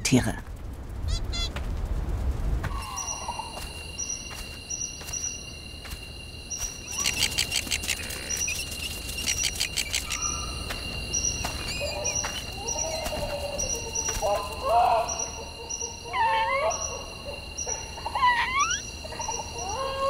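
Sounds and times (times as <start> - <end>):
squeaky animal calls: 1.0 - 1.5, 6.8 - 10.6, 11.2 - 20.0
birds chirping: 1.0 - 1.6, 2.7 - 20.0
rapid bird trills: 6.5 - 20.0.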